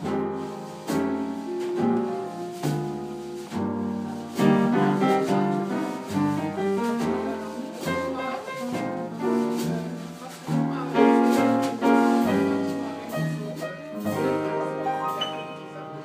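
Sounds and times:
acoustic piano chords and melody: 0.0 - 16.0
drum kit keeping time: 0.0 - 16.0
plucked double bass: 0.0 - 16.0.

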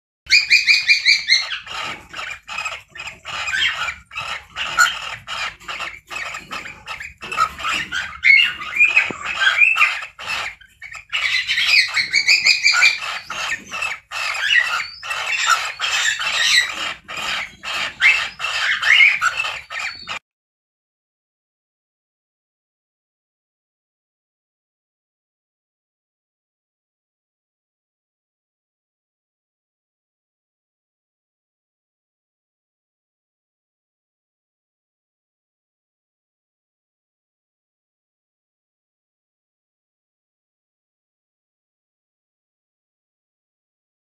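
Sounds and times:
cockatiels chattering and chirping: 0.3 - 20.2.

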